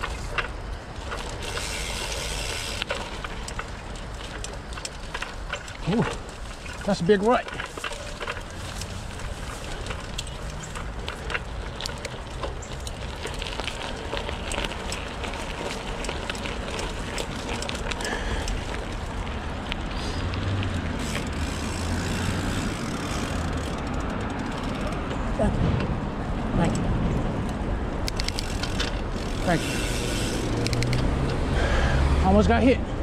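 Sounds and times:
bike clicks and rattles: 0:00.0 - 0:33.0
bike tyres on dirt: 0:00.0 - 0:33.0
road traffic hum: 0:00.0 - 0:33.0.

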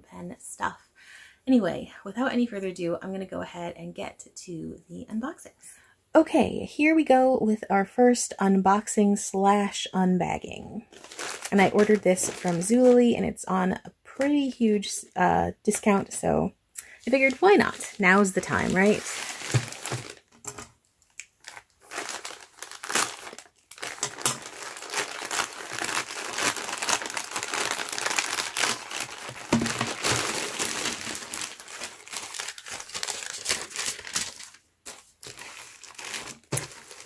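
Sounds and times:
plastic mailer crinkling: 0:10.9 - 0:13.2, 0:17.0 - 0:20.7, 0:21.4 - 0:37.0.

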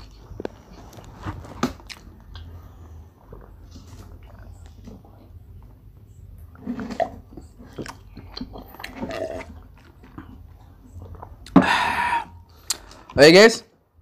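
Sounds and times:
person gulping water: 0:06.7 - 0:10.5, 0:11.1 - 0:12.8
breathy exhale: 0:11.6 - 0:13.1.

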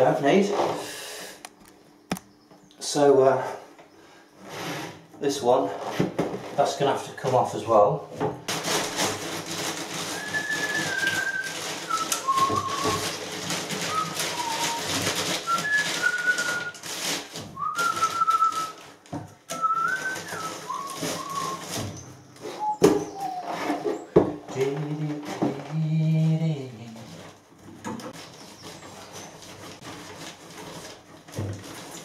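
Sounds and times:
hands rustling and scraping: 0:08.5 - 0:25.6, 0:26.5 - 0:32.0
person whistling a tune: 0:10.1 - 0:13.1, 0:13.8 - 0:16.8, 0:17.6 - 0:18.9, 0:19.5 - 0:21.8, 0:22.5 - 0:23.5.

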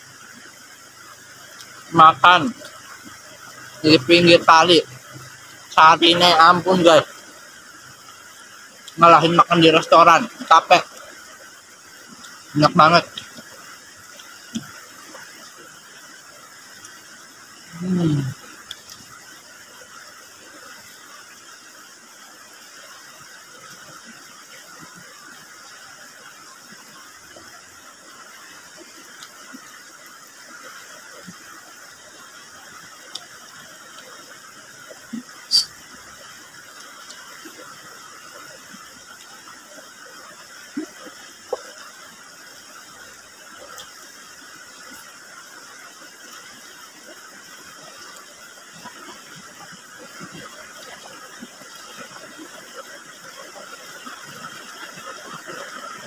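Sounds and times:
river flowing over rocks: 0:00.0 - 0:56.0
mouth sucking sound: 0:35.5 - 0:35.8.

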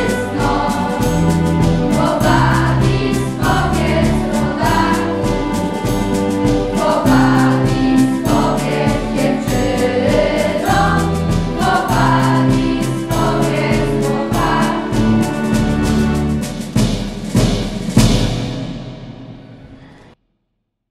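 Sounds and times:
children's choir singing: 0:00.0 - 0:16.4
instrumental accompaniment with beat: 0:00.0 - 0:19.6.

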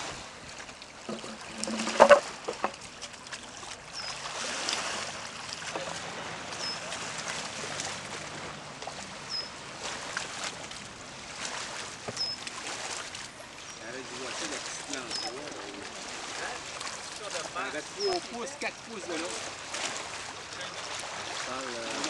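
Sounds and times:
outdoor background noise: 0:00.0 - 0:22.0
bird chirping: 0:09.3 - 0:09.6.

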